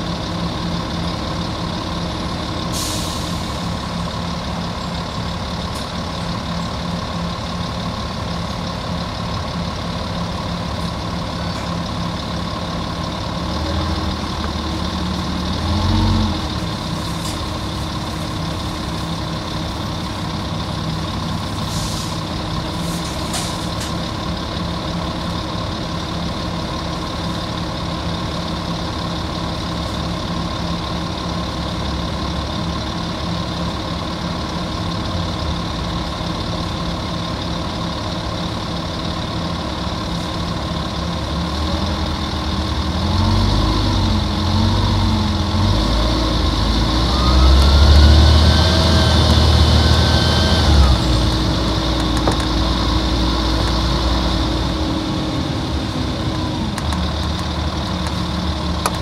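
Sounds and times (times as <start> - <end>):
bus diesel engine idling: 0.0 - 59.0
short air hisses: 2.7 - 3.7, 21.6 - 23.8.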